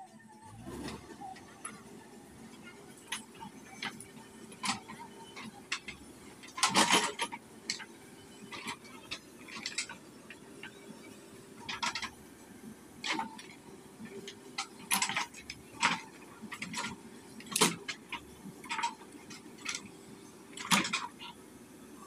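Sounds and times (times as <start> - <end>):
metallic clanks of digger bucket: 2.5 - 10.9, 11.6 - 12.2, 13.0 - 21.3.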